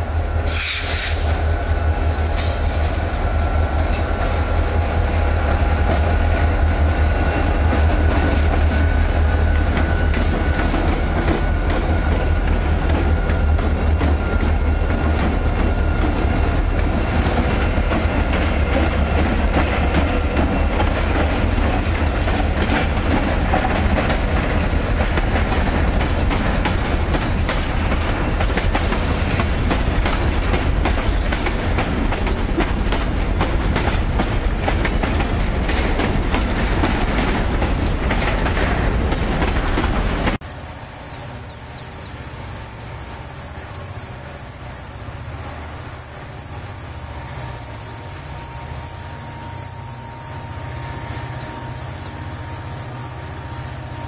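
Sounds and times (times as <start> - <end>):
diesel locomotives rumbling: 0.0 - 54.0
wheels clicking over rail joints: 5.8 - 40.4.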